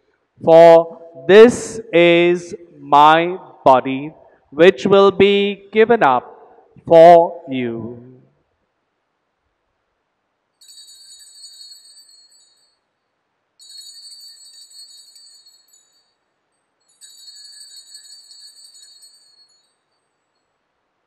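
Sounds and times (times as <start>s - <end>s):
altar bells jingling: 10.6s - 20.6s.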